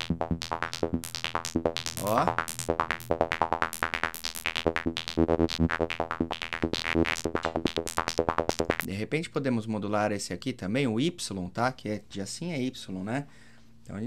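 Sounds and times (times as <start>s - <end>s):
fast synthesizer plucks: 0.0s - 8.8s.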